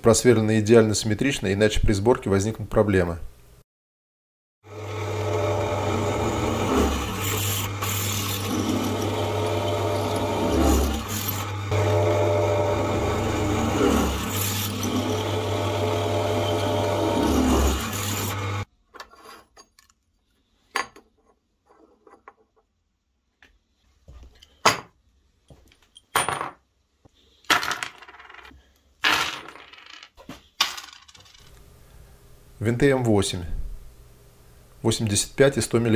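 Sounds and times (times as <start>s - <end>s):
drill press cutting steel: 4.7s - 18.7s.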